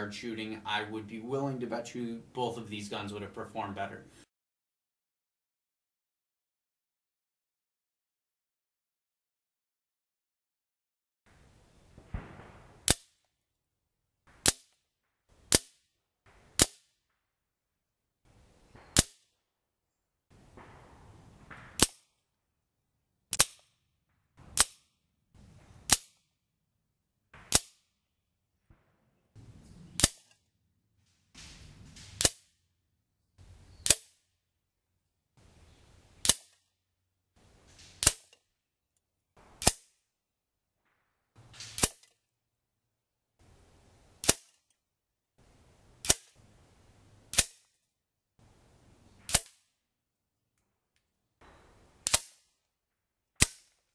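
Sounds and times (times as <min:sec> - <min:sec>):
air rifle pellet shots: 0:12.0 - 0:13.3, 0:14.3 - 0:14.8, 0:15.4 - 0:17.2, 0:18.7 - 0:19.4, 0:20.4 - 0:22.2, 0:23.3 - 0:26.3, 0:27.3 - 0:28.0, 0:28.7 - 0:32.7, 0:33.4 - 0:34.3, 0:35.9 - 0:36.7, 0:37.7 - 0:38.5, 0:39.4 - 0:40.0, 0:40.8 - 0:42.2, 0:44.2 - 0:44.6, 0:46.0 - 0:46.4, 0:47.3 - 0:47.8, 0:49.2 - 0:49.8, 0:51.4 - 0:52.6, 0:53.4 - 0:53.9.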